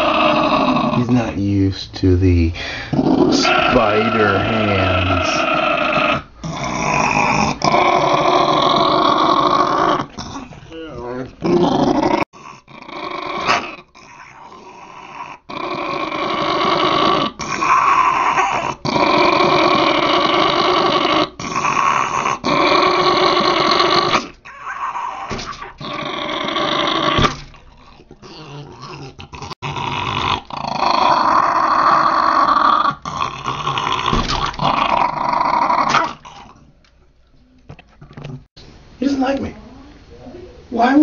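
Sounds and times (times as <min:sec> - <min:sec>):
small dog growling: 0:00.0 - 0:01.3, 0:02.9 - 0:36.7
dog breathing: 0:02.5 - 0:04.9.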